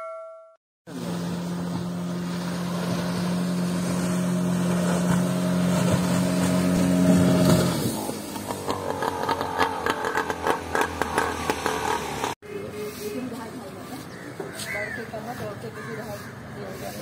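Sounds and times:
outboard motor running: 0:00.9 - 0:12.6.

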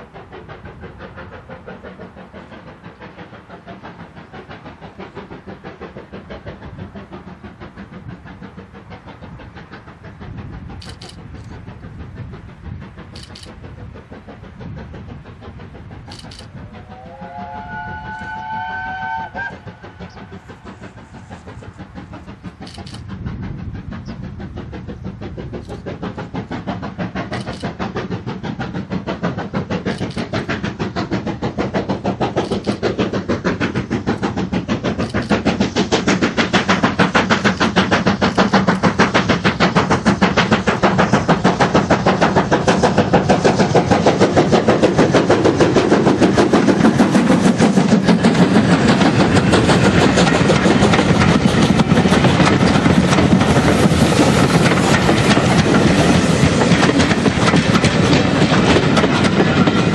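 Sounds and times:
steam locomotive exhaust beat: 0:00.0 - 0:59.9
steam locomotive whistle: 0:16.6 - 0:20.2.

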